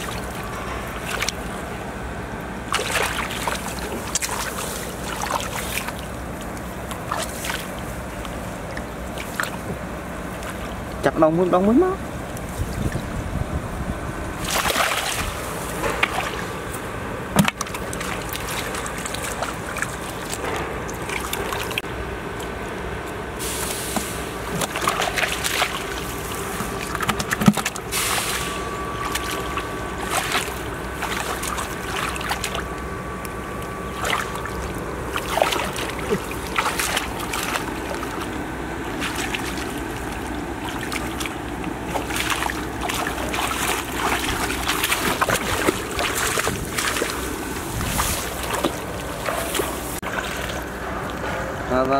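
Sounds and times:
hands splashing in muddy water: 2.7s - 11.0s, 14.4s - 16.8s, 17.4s - 21.9s, 23.5s - 50.8s
grass rustling: 33.9s - 50.4s.

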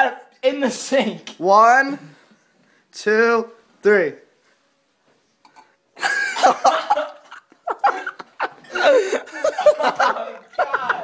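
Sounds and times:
people laughing and exclaiming: 6.0s - 11.0s.

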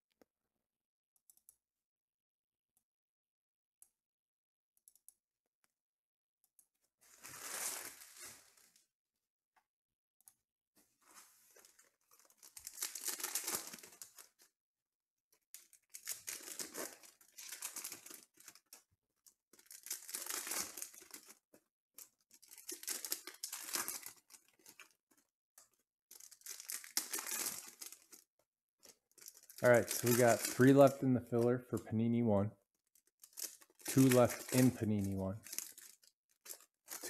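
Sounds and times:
foil wrappers tearing and crinkling: 7.1s - 8.8s, 11.6s - 14.4s, 15.6s - 18.8s, 19.6s - 21.4s, 22.1s - 25.0s, 26.1s - 28.2s, 29.1s - 31.0s, 33.2s - 37.0s.

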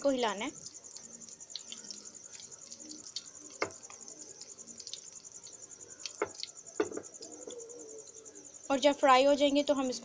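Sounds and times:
chicken frying in hot oil: 0.0s - 7.4s
cricket chirping: 0.0s - 10.0s.

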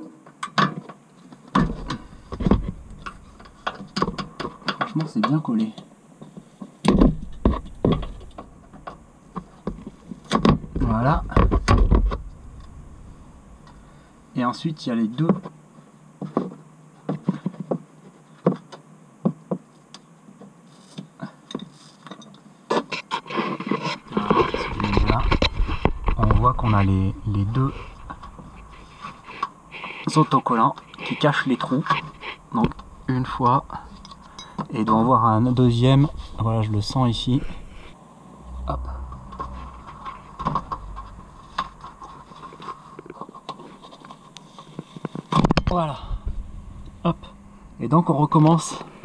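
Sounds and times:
low rumble: 10.8s - 14.4s, 24.1s - 29.7s, 32.4s - 34.4s, 35.0s - 43.0s, 45.8s - 48.4s.

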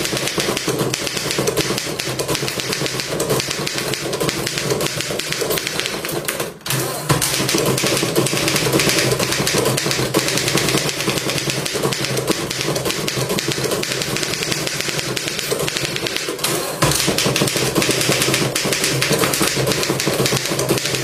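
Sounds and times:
manual typewriter typing: 0.0s - 21.0s.

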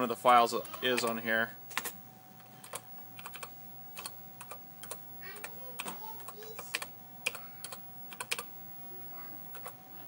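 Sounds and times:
computer keyboard keystrokes: 2.6s - 8.5s, 9.5s - 9.8s.

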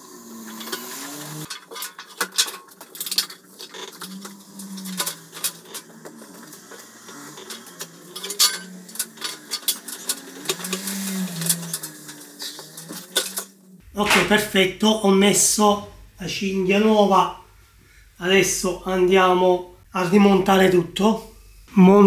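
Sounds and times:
metal tools clinking on sheet metal: 0.5s - 14.4s.

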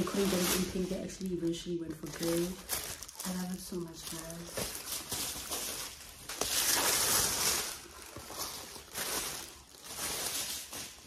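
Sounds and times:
tissue paper and plastic crinkling: 0.0s - 11.0s.

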